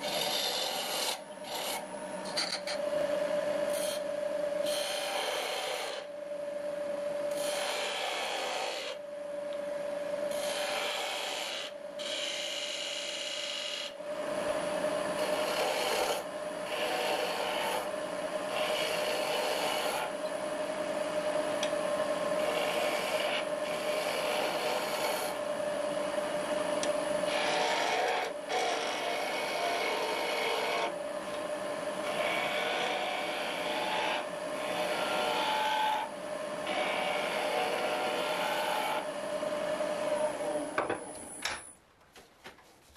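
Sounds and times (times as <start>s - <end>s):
chisel rasping on spinning wood: 0.0s - 2.8s, 3.7s - 6.1s, 7.3s - 9.0s, 10.3s - 13.9s, 15.2s - 17.9s, 18.5s - 20.2s, 22.3s - 25.4s, 27.2s - 31.0s, 32.0s - 39.1s
lathe humming: 0.0s - 41.5s.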